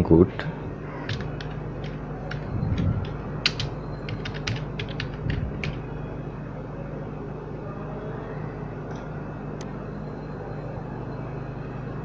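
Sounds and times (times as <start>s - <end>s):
low steady hum: 0.0s - 12.0s
computer keyboard typing: 1.0s - 5.8s.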